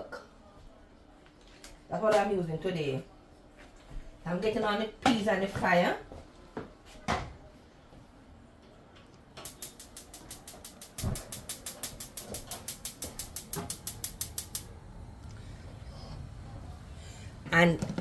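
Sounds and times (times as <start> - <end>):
gas stove igniter clicking: 9.4 - 14.7
pot knocking on burner grate: 9.5 - 14.6.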